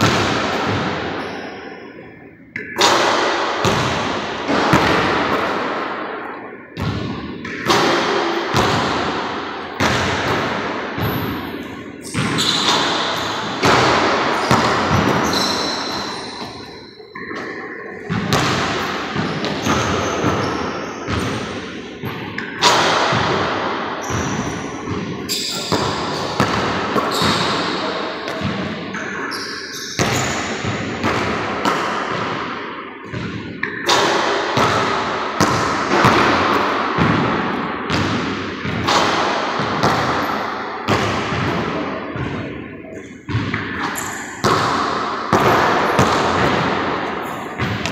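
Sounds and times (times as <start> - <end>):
basketball hitting backboard and rim: 0.0 - 1.4, 2.5 - 6.2, 6.8 - 47.9
basketball bouncing on wooden floor: 3.6 - 4.1, 6.8 - 9.1, 12.1 - 16.7, 18.1 - 27.7, 28.3 - 28.8, 30.0 - 32.4, 33.1 - 40.2, 43.3 - 47.9.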